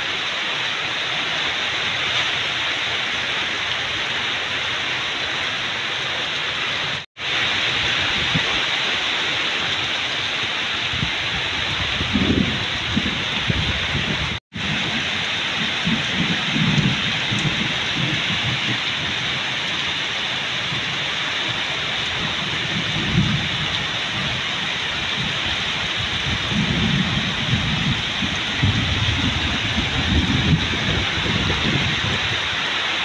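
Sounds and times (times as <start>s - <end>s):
heavy rain pouring on pavement: 0.0s - 33.0s
low thunder rumbles: 11.0s - 19.4s, 22.0s - 32.7s.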